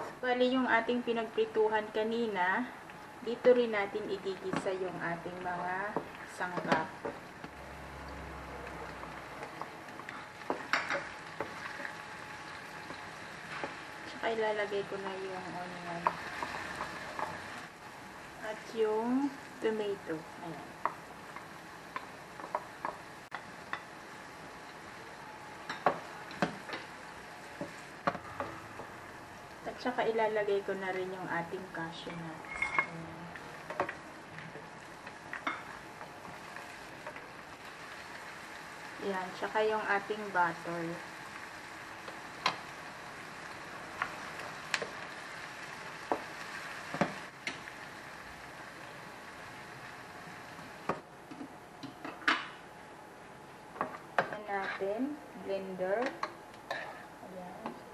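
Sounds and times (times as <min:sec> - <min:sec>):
food sizzling in butter: 0:03.1 - 0:51.0, 0:53.8 - 0:57.2
wooden spatula scraping frying pan: 0:54.5 - 0:54.9, 0:56.7 - 0:57.1.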